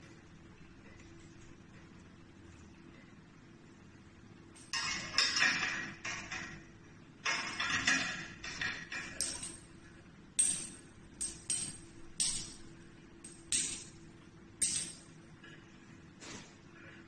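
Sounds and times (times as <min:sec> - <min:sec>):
metal hoses clinking: 0:04.6 - 0:15.2.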